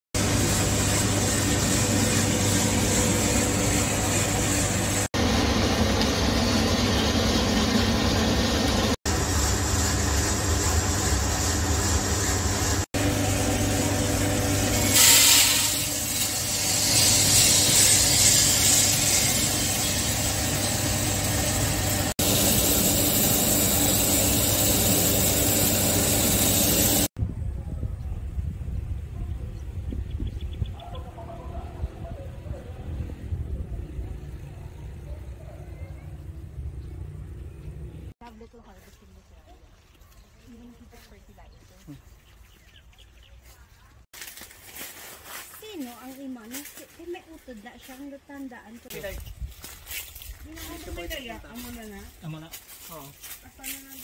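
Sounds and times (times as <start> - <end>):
coffee roaster humming: 0.2 - 27.1
coffee beans pouring: 14.4 - 27.1.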